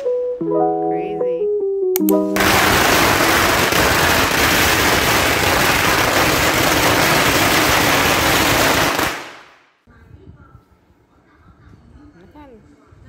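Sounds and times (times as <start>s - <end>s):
firecrackers crackling: 2.4s - 9.7s.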